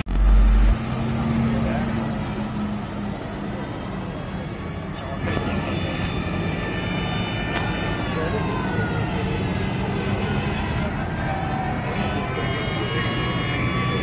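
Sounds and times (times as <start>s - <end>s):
whine sliding down in pitch: 0.0s - 2.8s
tractor engines driving past: 0.0s - 14.0s.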